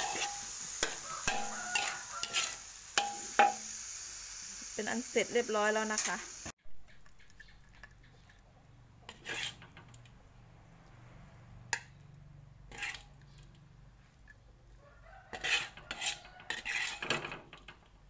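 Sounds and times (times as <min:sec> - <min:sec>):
metal ladle scraping a wok: 0:00.0 - 0:04.7, 0:05.9 - 0:06.5, 0:09.0 - 0:10.0, 0:12.6 - 0:14.4, 0:15.2 - 0:17.7.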